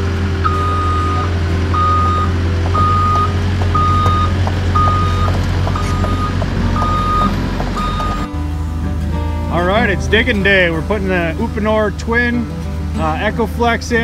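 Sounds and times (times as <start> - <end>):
diesel engine hum: 0.0 - 14.0
excavator warning alarm beeping: 0.4 - 8.3.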